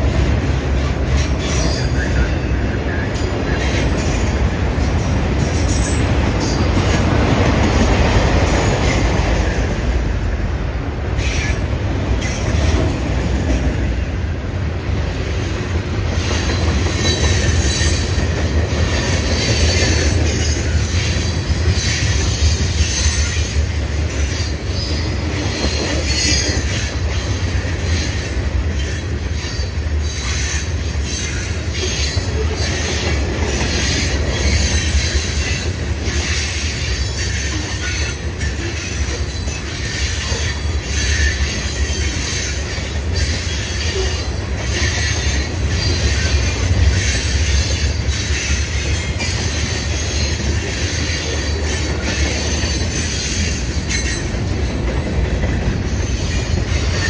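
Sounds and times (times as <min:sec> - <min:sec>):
train wheels rumbling on rail: 0:00.0 - 0:57.0
high-pitched wheel squeal: 0:36.2 - 0:54.8.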